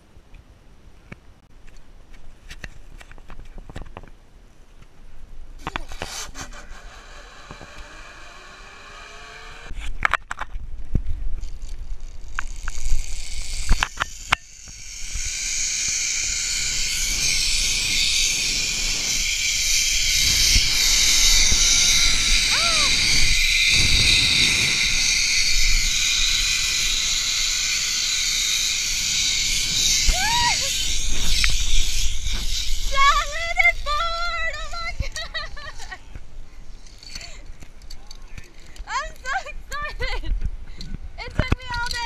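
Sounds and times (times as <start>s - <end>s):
zip-line pulleys whirring: 5.6s - 9.9s, 11.4s - 36.0s, 36.7s - 37.5s
rushing air: 14.2s - 33.0s.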